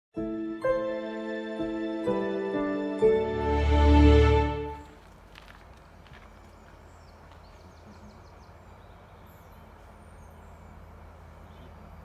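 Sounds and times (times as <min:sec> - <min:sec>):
birds chirping: 0:04.6 - 0:12.0.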